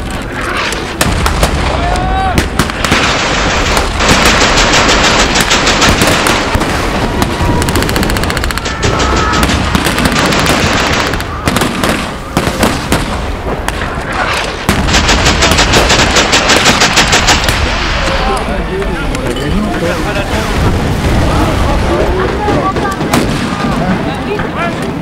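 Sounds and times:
rifle shots: 0:00.6 - 0:18.1
machine-gun bursts: 0:02.8 - 0:06.6, 0:07.6 - 0:12.0, 0:14.9 - 0:17.5.

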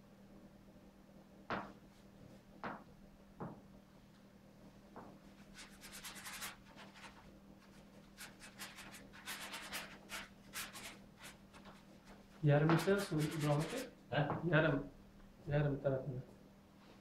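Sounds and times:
faint steady hum: 0:00.0 - 0:17.0
paintbrush scrubbing on canvas: 0:05.3 - 0:13.9.

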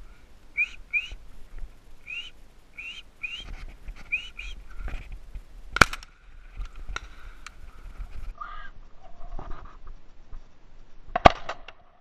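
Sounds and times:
whistled bird call chirps: 0:00.6 - 0:01.2, 0:02.0 - 0:03.5, 0:04.1 - 0:04.6
shotgun shot: 0:05.8 - 0:06.1.

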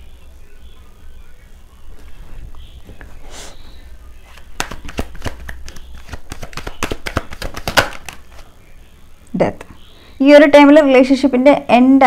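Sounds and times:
cards being shuffled: 0:04.2 - 0:08.5.

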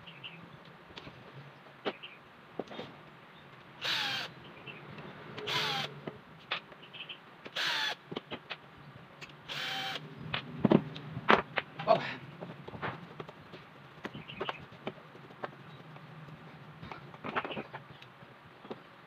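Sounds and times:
cordless drill whining: 0:03.8 - 0:04.3, 0:05.4 - 0:06.0, 0:07.6 - 0:08.0, 0:09.5 - 0:10.0.

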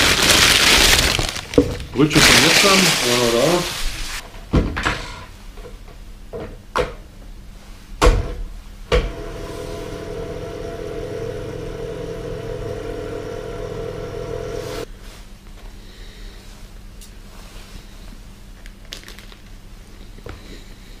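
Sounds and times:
steady electric hum: 0:08.5 - 0:21.0.

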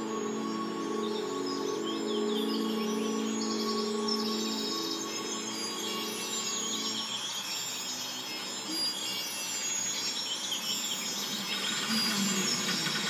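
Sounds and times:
low musical tone: 0:00.0 - 0:09.2
insects chirping: 0:00.0 - 0:13.0.

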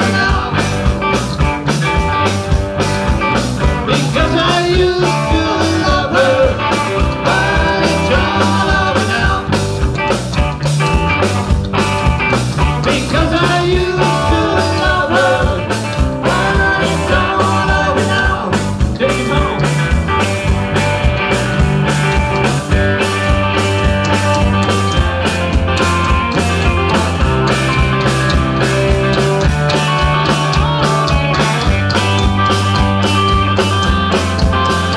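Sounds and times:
bass: 0:00.0 - 0:34.9
electric guitars: 0:00.0 - 0:34.9
rock drum beat: 0:00.0 - 0:34.9
woman singing: 0:16.2 - 0:18.5.

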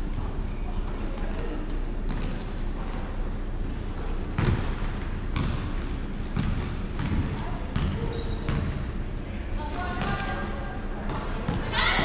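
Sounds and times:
sneaker squeaks: 0:00.0 - 0:08.9
basketball bouncing on hardwood floor: 0:04.0 - 0:04.7, 0:05.4 - 0:05.7, 0:06.4 - 0:08.8.

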